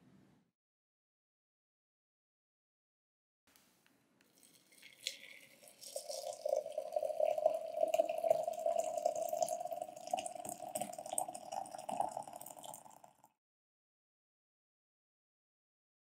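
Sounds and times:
tea pouring into mug: 4.3 - 13.4.

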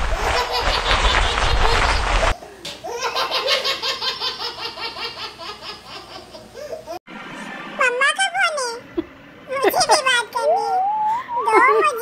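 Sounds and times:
high-pitched laughter: 0.2 - 2.0.

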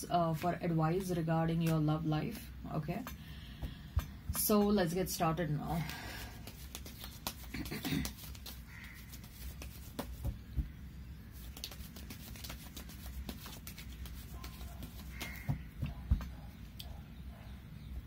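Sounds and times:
low steady hum: 0.0 - 18.0
cards being shuffled: 5.8 - 10.4, 11.4 - 15.6.

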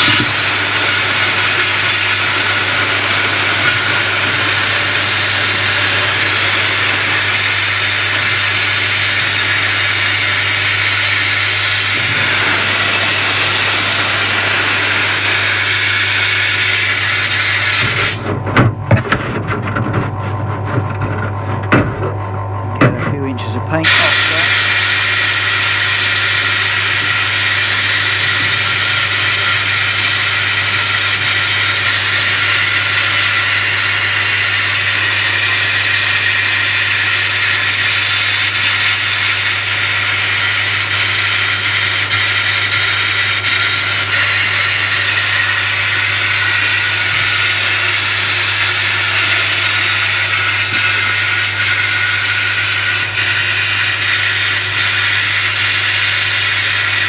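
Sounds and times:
low hum: 0.0 - 25.3
bead blaster hissing: 11.7 - 18.2.

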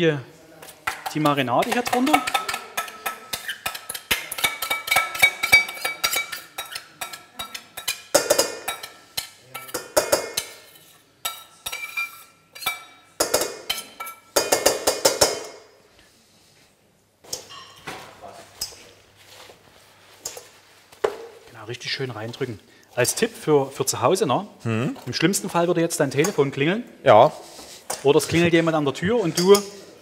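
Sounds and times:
metal spoon scraping steel bowl: 1.0 - 13.0, 27.4 - 30.0.

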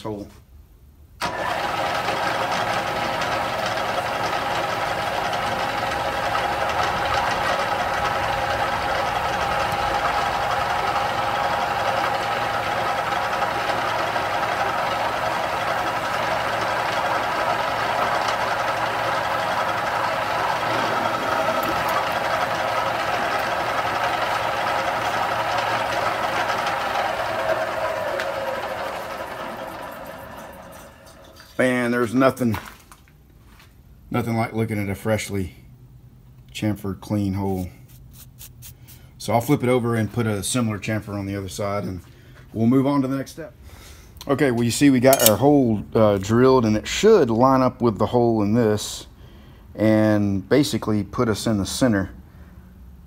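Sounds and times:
drill press humming: 1.2 - 31.6.

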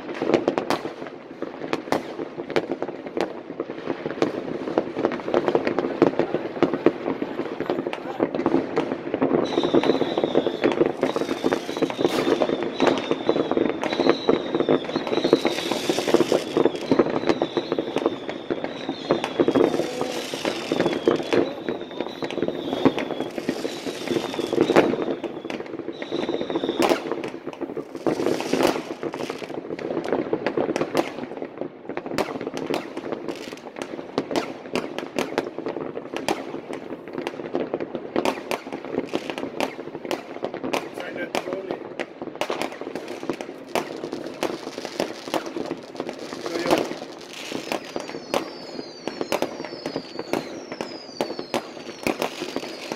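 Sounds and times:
fireworks bangs and crackling: 0.0 - 52.9
short high whistle: 9.6 - 15.8, 16.8 - 25.4, 47.7 - 52.9.

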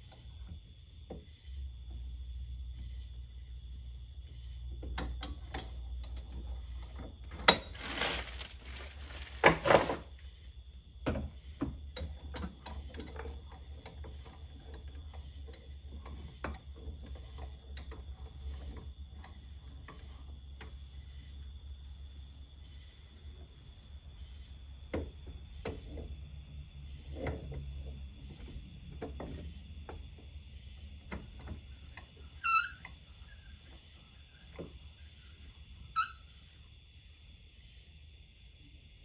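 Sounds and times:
metal rattling: 7.3 - 10.0
metal clanks and knocks: 7.3 - 10.1.

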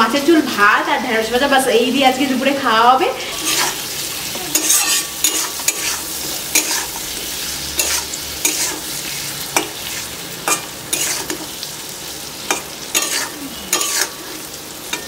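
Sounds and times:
onion and tomato sizzling in oil: 0.0 - 15.0
metal spatula scraping pan: 3.2 - 7.1, 7.7 - 11.6, 12.5 - 15.0.

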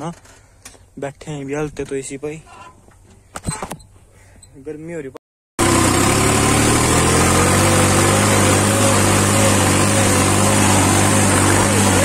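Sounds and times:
tractor diesel engine running: 5.6 - 12.0.

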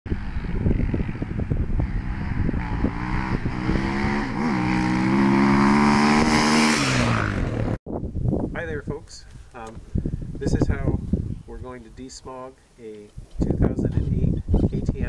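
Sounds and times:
dirt bike engine accelerating: 0.1 - 7.8.

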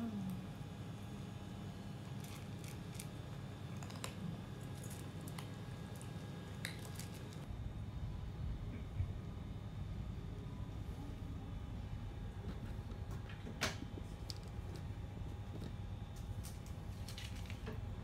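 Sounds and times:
kittens chewing and lapping: 2.0 - 7.5.

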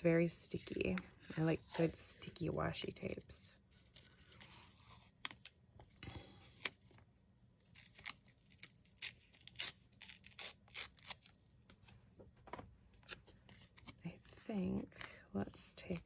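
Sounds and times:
tape peeling and tearing: 7.6 - 11.4.

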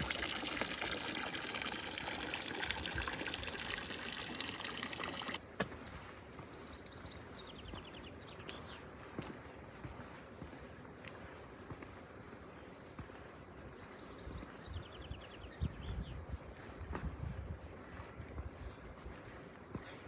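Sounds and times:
crickets chirping: 5.4 - 20.0.

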